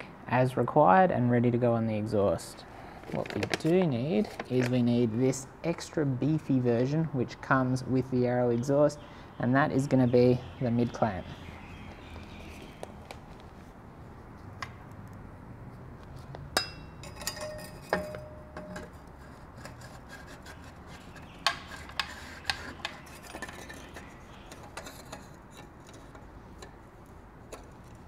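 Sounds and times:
metal clinks and taps: 16.5 - 19.1.

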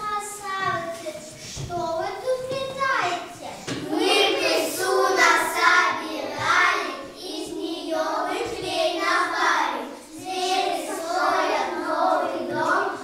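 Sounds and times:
children singing: 3.7 - 13.0.

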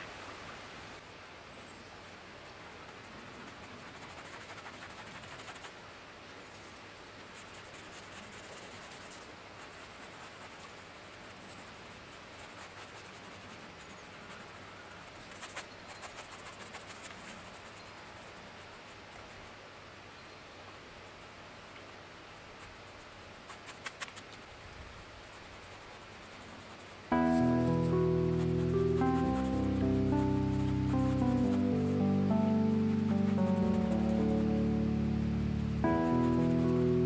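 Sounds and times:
paintbrush scratching on canvas: 2.7 - 5.8, 7.3 - 19.6, 22.6 - 24.4, 25.2 - 34.9, 35.7 - 37.0.

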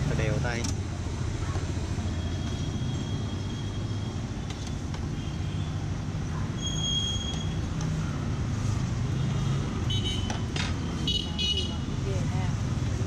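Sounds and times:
traffic engine rumble: 0.0 - 13.0
high squeal: 6.6 - 7.6.

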